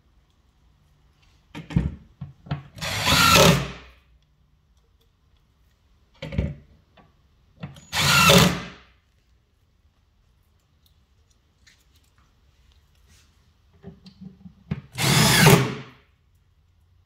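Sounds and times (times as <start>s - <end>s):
cordless drill driving screws: 2.8s - 3.8s, 7.8s - 8.8s, 14.9s - 15.8s.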